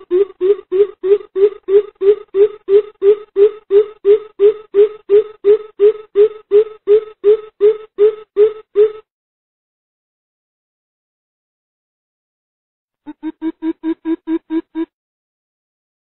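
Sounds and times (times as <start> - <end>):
bird calling low boop notes: 0.0 - 9.1, 13.1 - 14.9.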